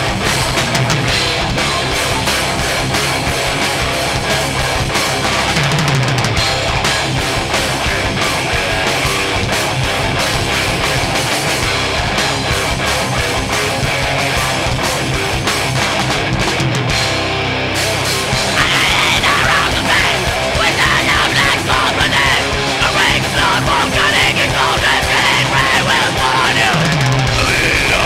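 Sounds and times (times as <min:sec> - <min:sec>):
bass guitar: 0:00.0 - 0:28.0
distorted electric guitars: 0:00.0 - 0:28.0
drum kit: 0:00.0 - 0:28.0
person shouting vocals: 0:18.5 - 0:28.0.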